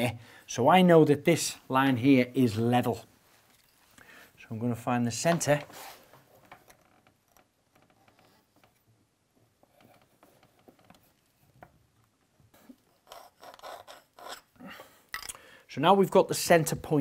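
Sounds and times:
pencil scratching on tile: 12.6 - 14.5.

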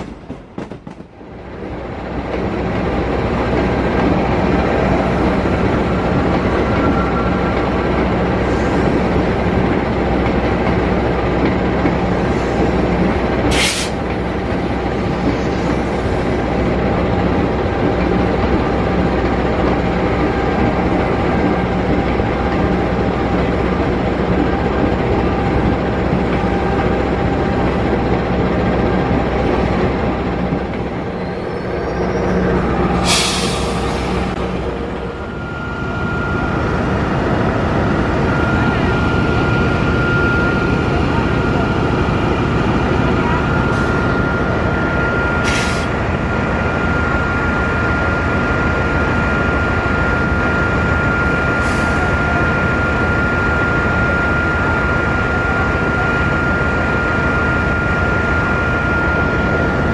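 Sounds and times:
train wheels rumbling on track: 0.0 - 59.9
hiss: 13.5 - 14.0
faint whine: 35.0 - 42.0.

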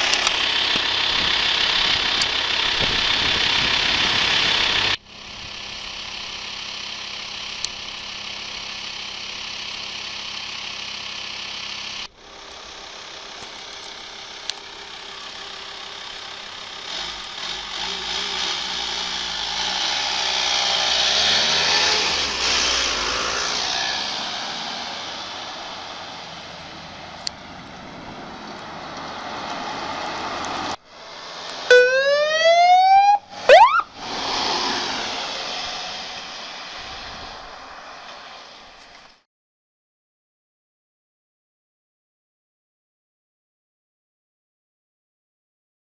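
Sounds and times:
vehicle engines idling: 0.0 - 39.2
ambulance driving past: 13.2 - 38.9.

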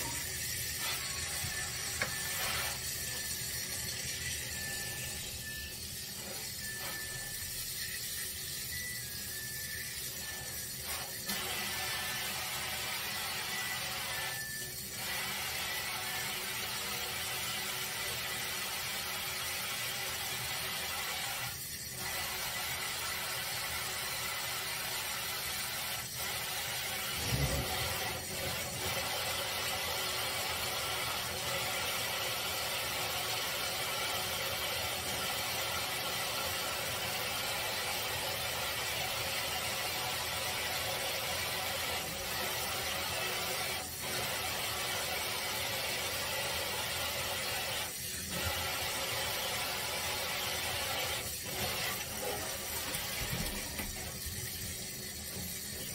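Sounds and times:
water running into steel sink: 0.0 - 55.9.

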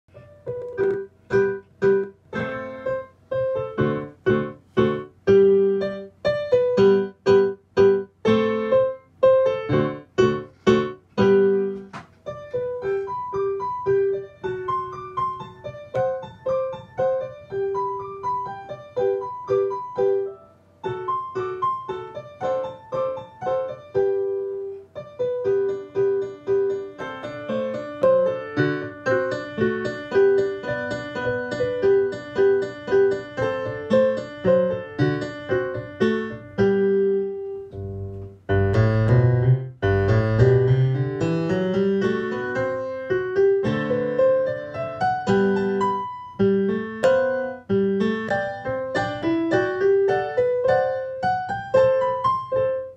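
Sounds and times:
piano chords and notes: 0.1 - 52.9.

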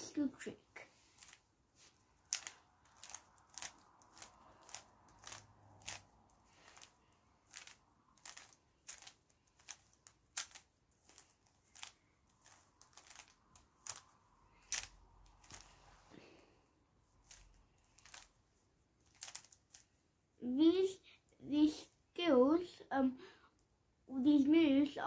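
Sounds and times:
puzzle cube layers clicking: 1.2 - 1.4, 2.2 - 15.7, 17.2 - 18.3, 19.0 - 19.8.

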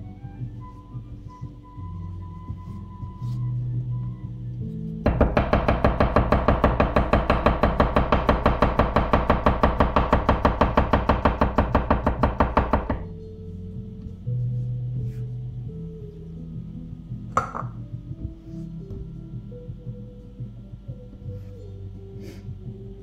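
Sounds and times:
background music: 0.0 - 23.0
knife chopping on wooden board: 5.1 - 13.0, 17.4 - 17.7.

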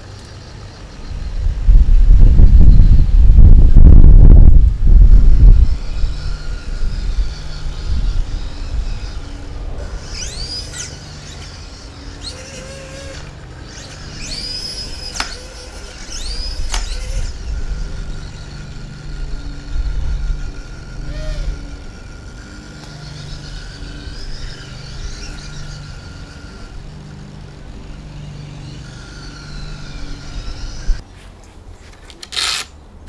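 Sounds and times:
motors and gears whining: 0.0 - 31.1.

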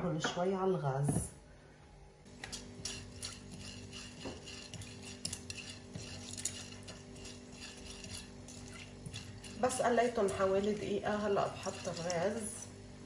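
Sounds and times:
steady low hum: 0.0 - 13.0
spices frying in hot oil: 2.4 - 12.7.

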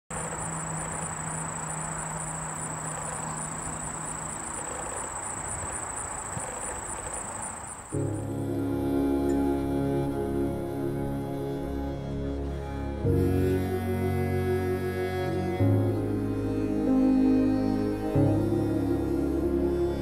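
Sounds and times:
crickets trilling: 0.1 - 10.1
soft outdoor hiss: 0.1 - 20.0
music: 8.0 - 20.0.

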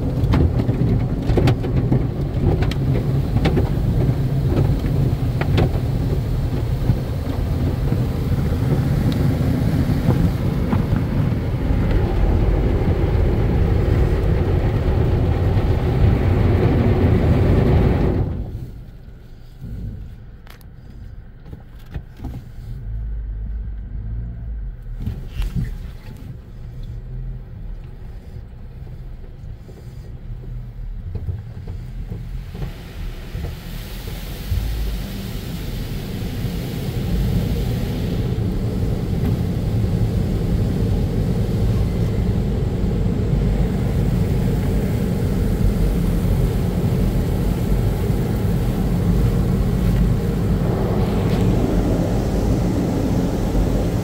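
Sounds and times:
drying blowers rushing air: 0.0 - 20.1, 31.5 - 54.0
car wash machinery rumbling: 0.0 - 54.0.

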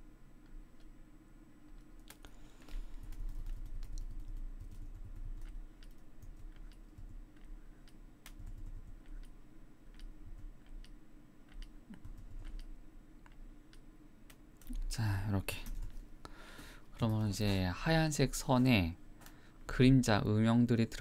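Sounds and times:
mouse and keyboard clicks: 1.6 - 14.8.

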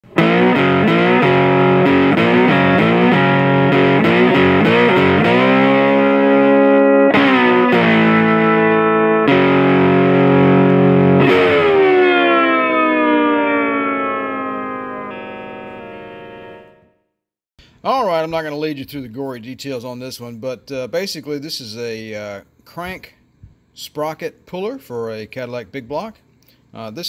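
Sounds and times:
distorted electric guitar chords: 0.0 - 17.0.

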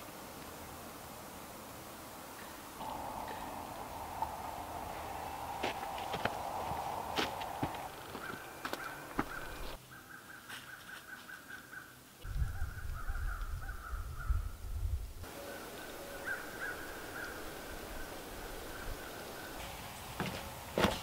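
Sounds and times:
low rumble: 2.8 - 8.1.

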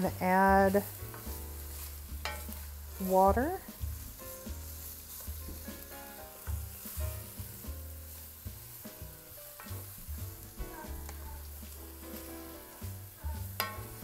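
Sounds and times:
meat frying in oil: 0.0 - 14.0
wooden spoon scraping pot: 0.3 - 6.9.

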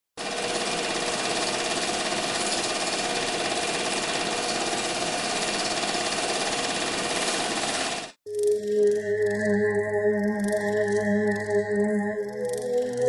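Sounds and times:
film projector clattering: 0.2 - 8.2.

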